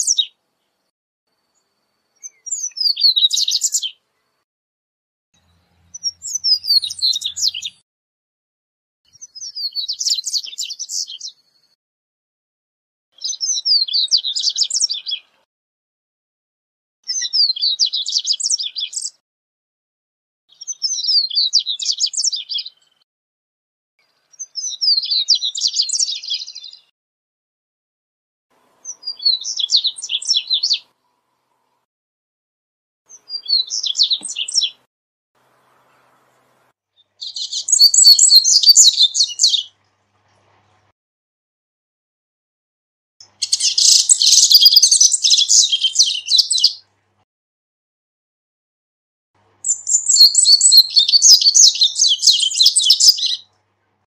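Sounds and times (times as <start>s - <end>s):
bird high twittering song: 0.0s - 4.4s, 5.4s - 7.8s, 9.1s - 11.8s, 13.2s - 15.4s, 17.1s - 19.2s, 20.5s - 23.0s, 24.0s - 26.9s, 28.7s - 31.8s, 33.1s - 39.8s, 43.2s - 46.8s, 49.6s - 53.5s.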